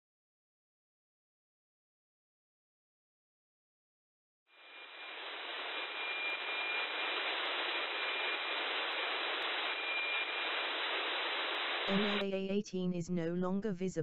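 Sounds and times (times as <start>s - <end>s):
faint broken high whistle: 4.6s - 11.6s
radio static hiss: 4.6s - 13.1s.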